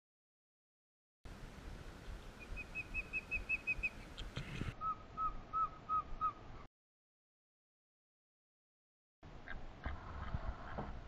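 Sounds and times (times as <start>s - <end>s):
osprey whistled chirps: 2.4s - 4.1s, 4.7s - 6.4s.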